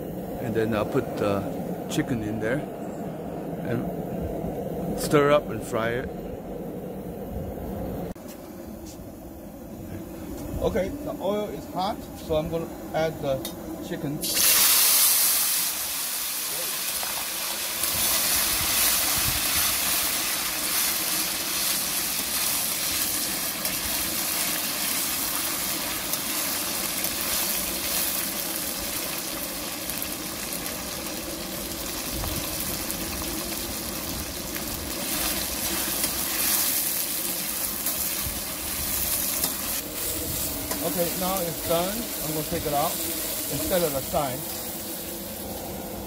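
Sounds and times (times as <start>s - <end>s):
gas burner roaring: 0.0s - 46.0s
chicken sizzling in hot oil: 14.0s - 46.0s.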